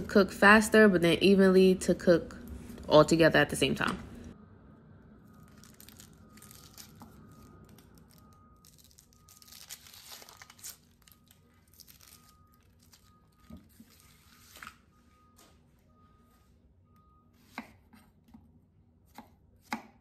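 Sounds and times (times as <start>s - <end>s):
onion skin crinkling and tearing: 5.3s - 14.8s.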